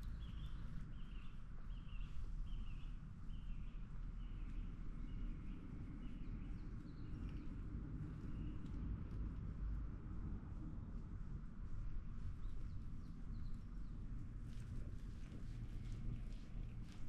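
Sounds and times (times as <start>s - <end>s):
low outdoor rumble: 0.0s - 17.0s
bird chirping: 0.1s - 7.5s.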